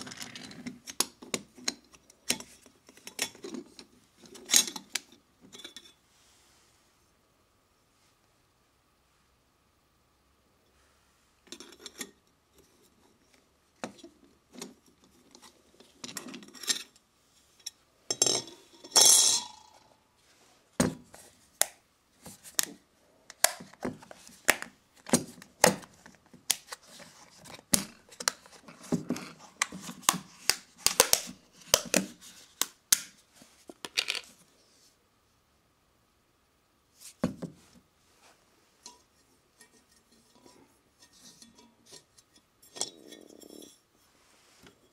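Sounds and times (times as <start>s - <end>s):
metal parts clinking on wooden floor: 33.8s - 34.3s.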